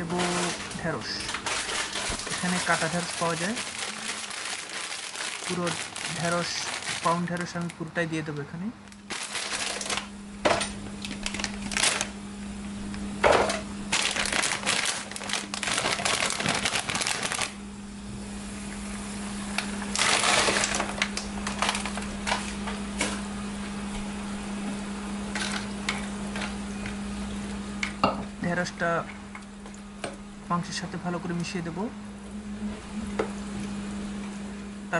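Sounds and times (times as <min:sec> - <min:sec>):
plastic bag crinkling: 0:00.0 - 0:07.9, 0:08.9 - 0:10.1, 0:11.0 - 0:12.2, 0:13.9 - 0:17.6, 0:19.9 - 0:22.6.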